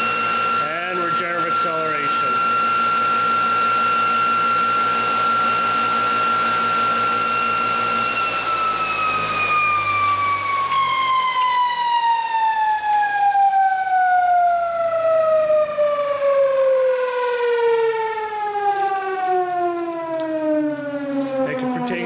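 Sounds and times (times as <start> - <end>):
motor whine spinning down: 0.0 - 22.0.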